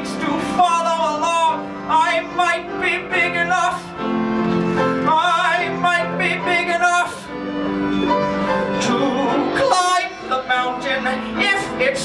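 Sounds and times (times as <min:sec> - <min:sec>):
singing with vibrato: 0:00.0 - 0:04.0, 0:04.9 - 0:07.4, 0:08.4 - 0:12.0
instrumental accompaniment: 0:00.0 - 0:12.0.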